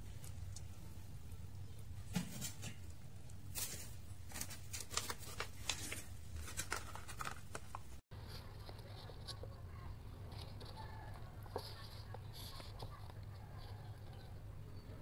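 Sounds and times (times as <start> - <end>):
paper lid crinkling and tearing: 3.5 - 7.9.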